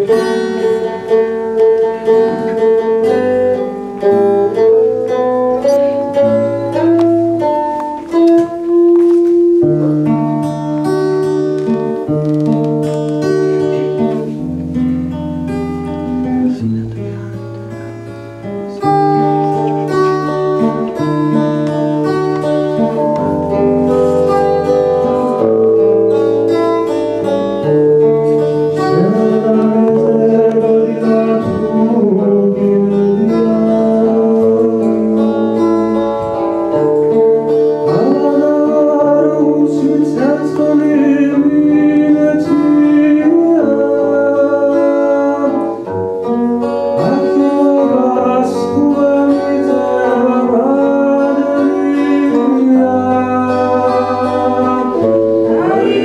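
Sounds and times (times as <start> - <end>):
acoustic guitar: 0.0 - 56.0
voices singing in harmony: 47.0 - 56.0.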